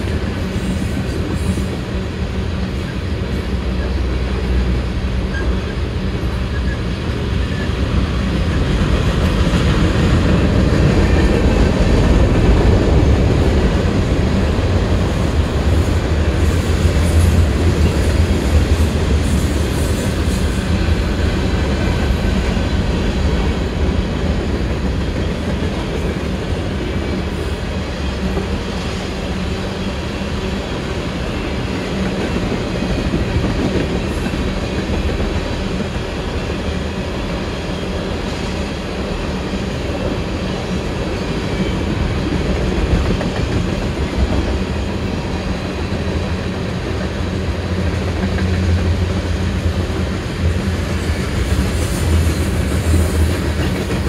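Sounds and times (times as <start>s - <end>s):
train wheels on rails: 0.0s - 54.0s.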